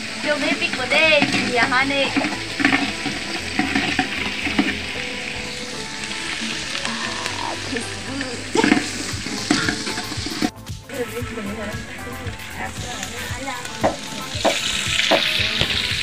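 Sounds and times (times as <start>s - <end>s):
food sizzling in a pot: 0.0s - 16.0s
metal ladle scraping a pot: 0.7s - 5.0s, 8.5s - 10.5s.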